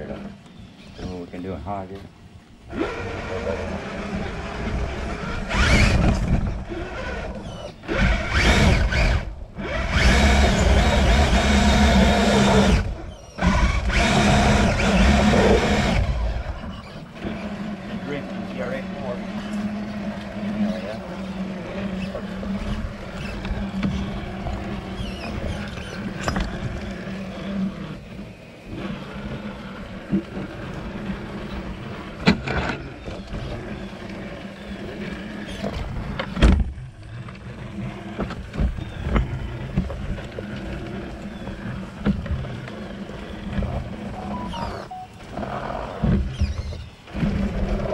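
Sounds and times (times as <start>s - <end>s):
toy truck electric motor whining: 2.7s - 17.8s, 19.4s - 31.6s.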